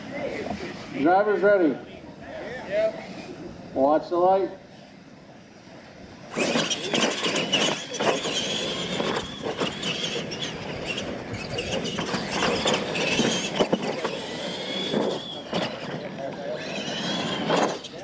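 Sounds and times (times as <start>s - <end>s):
toy truck motors whining: 6.3s - 18.0s
tyres scrabbling on dirt: 6.3s - 18.0s.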